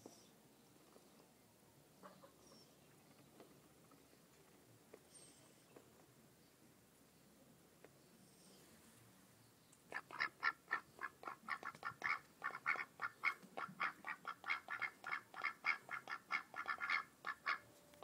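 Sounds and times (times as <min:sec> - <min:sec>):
ducks quacking: 0:09.9 - 0:17.6.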